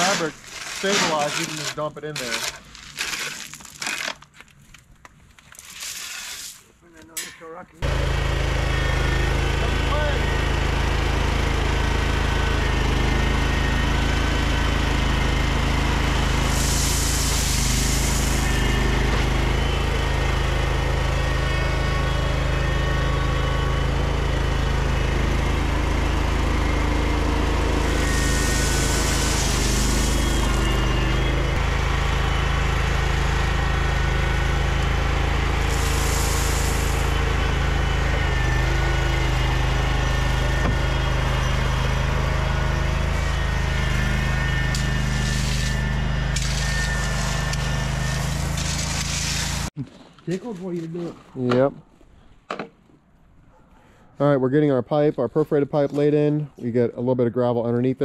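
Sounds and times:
engine running: 0:00.0 - 0:04.1, 0:07.1 - 0:50.2
brief hissing rushes: 0:16.4 - 0:18.6.

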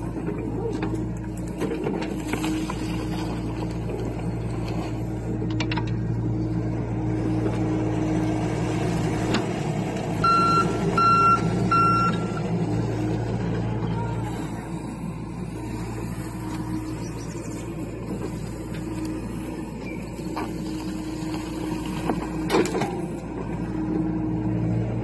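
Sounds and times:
excavator diesel engine running: 0:00.0 - 0:25.0
travel alarm beeping: 0:10.2 - 0:12.4.

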